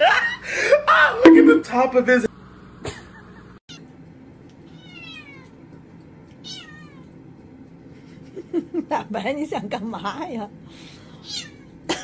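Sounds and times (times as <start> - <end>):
cat meowing: 4.7 - 5.5, 6.4 - 7.0, 11.2 - 11.6.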